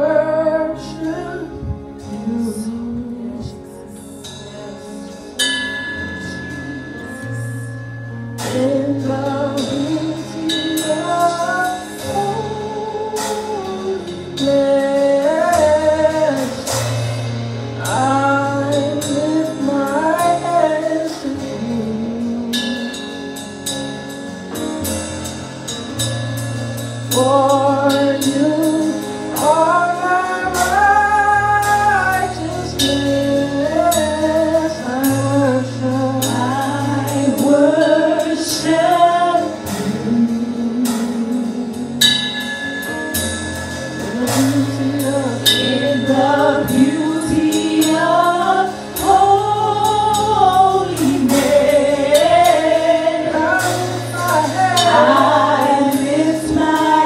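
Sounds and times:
band with drum kit: 0:00.0 - 0:57.0
women singing: 0:27.2 - 0:41.7, 0:44.0 - 0:57.0.

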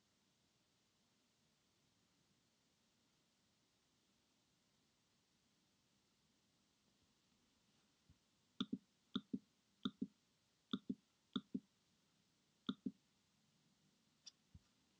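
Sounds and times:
computer mouse clicks: 0:10.8 - 0:11.7, 0:12.7 - 0:13.0.

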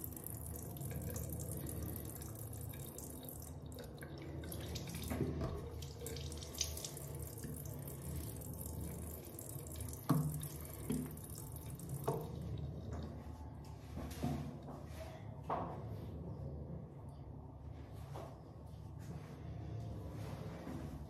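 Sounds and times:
tap water running into sink: 0:00.0 - 0:13.1.

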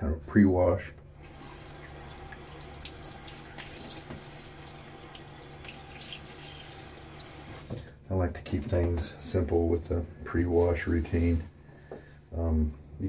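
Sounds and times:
water drips: 0:01.2 - 0:08.0
water splashing from hands: 0:01.3 - 0:07.7
tap running into sink: 0:01.3 - 0:08.0.

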